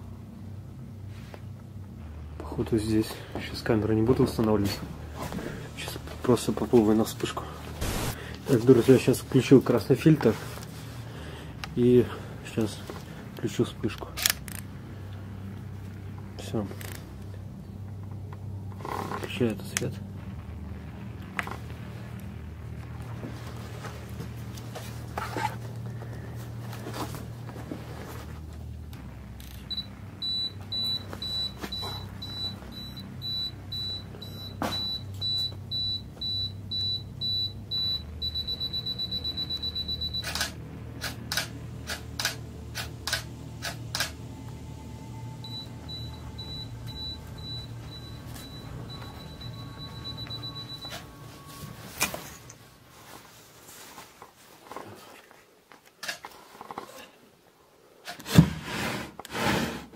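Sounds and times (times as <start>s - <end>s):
steady low hum: 0.0s - 53.9s
camera self-timer beeping: 37.8s - 40.5s.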